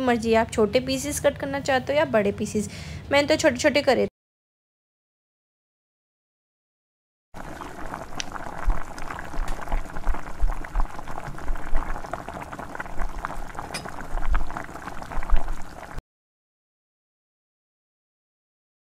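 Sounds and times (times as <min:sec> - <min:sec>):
dough deep-frying in hot oil: 0:07.4 - 0:16.0.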